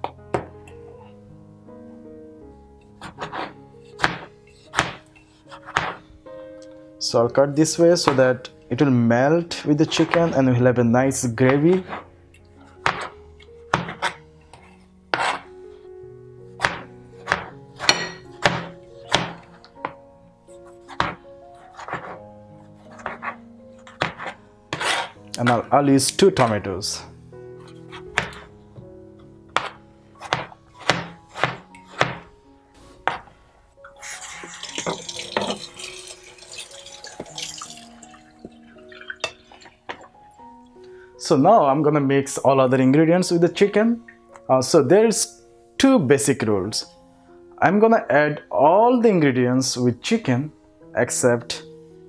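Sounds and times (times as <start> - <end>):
soft background music: 0.0 - 52.0
knife chopping on cutting board: 3.0 - 6.0, 12.8 - 13.1, 13.7 - 14.2, 16.6 - 20.0, 20.8 - 22.2, 22.8 - 25.6, 27.9 - 28.5, 29.5 - 32.3, 33.1 - 33.3
kitchen tap running: 33.9 - 40.0.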